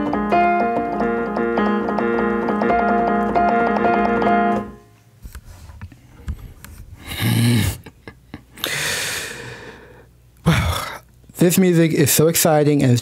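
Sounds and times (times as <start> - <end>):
digital piano chords: 0.0 - 5.0.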